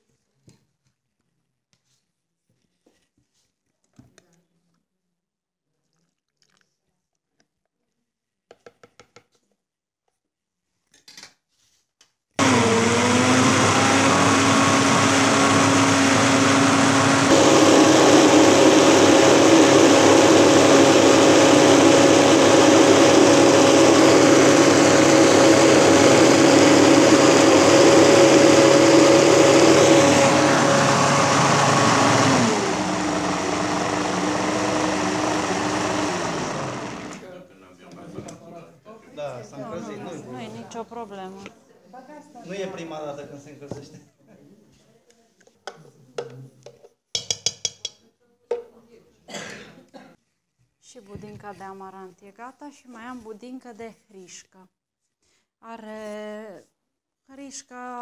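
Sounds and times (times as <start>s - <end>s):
blender motor running: 12.4s - 37.3s.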